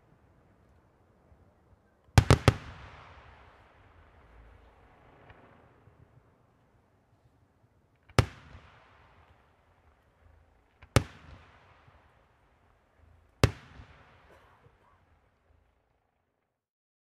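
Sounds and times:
echo of bangs: 2.2 - 6.2, 8.1 - 9.7, 10.8 - 12.2, 13.4 - 14.3.

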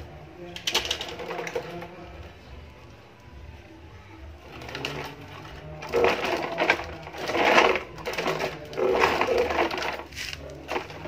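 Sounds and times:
toy trucks scraping on stone: 4.4 - 11.0.

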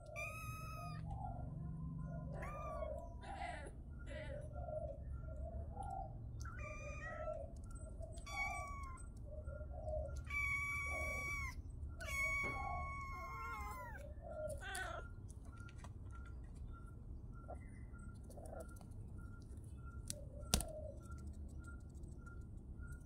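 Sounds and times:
kitten meowing: 0.0 - 1.0, 2.3 - 3.0, 6.4 - 7.4, 8.2 - 9.0, 10.2 - 14.0.

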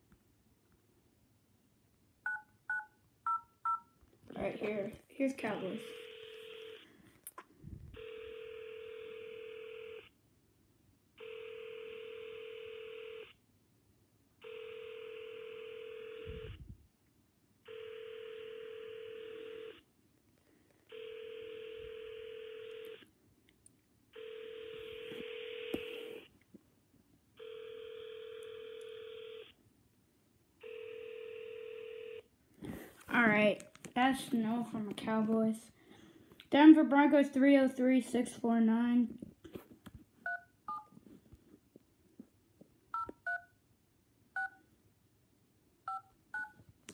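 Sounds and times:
telephone ringback tone: 8.0 - 10.0, 11.2 - 13.3, 14.4 - 16.6, 17.7 - 19.8, 20.9 - 23.0, 24.2 - 26.2, 27.4 - 29.5, 30.6 - 32.2.

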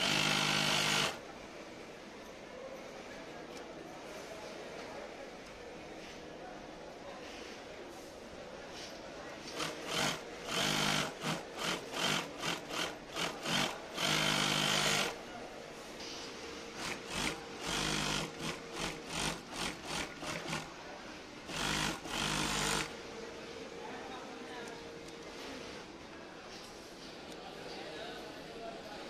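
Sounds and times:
sewing machine stitching: 0.0 - 1.2, 9.5 - 15.2, 16.8 - 20.7, 21.5 - 22.9.

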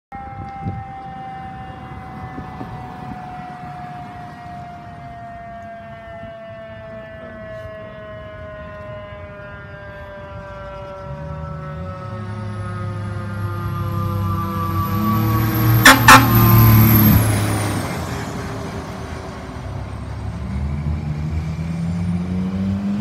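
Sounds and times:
fire engine siren: 0.1 - 23.0.

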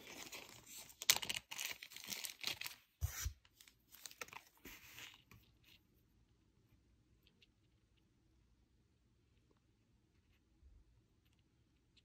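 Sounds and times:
packaging rustling and crinkling: 0.0 - 5.4.

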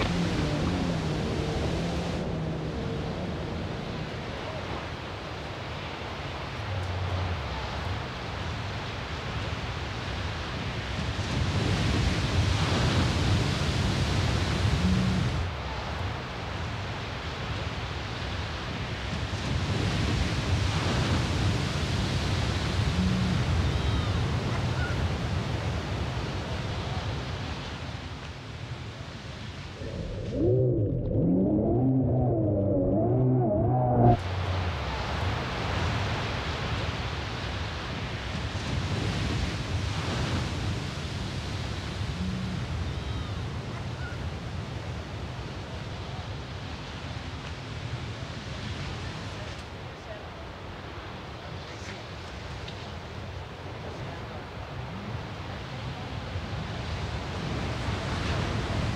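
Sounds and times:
heavy surf breaking: 0.0 - 6.2, 29.3 - 41.4
ocean surf breaking: 0.0 - 7.5
wind rumbling on microphone: 0.0 - 28.1, 28.8 - 49.5.

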